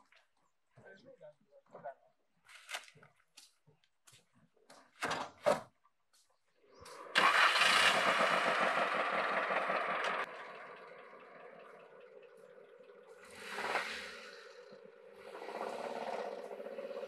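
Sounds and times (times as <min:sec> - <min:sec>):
vehicle engine running: 0:06.9 - 0:17.0.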